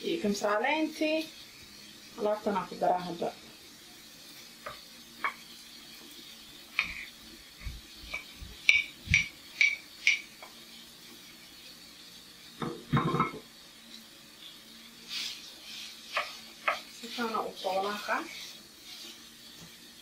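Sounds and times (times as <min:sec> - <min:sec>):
spatula scraping in pan: 0:04.0 - 0:20.0
spatula knocking on frying pan: 0:08.1 - 0:10.5, 0:16.1 - 0:16.9.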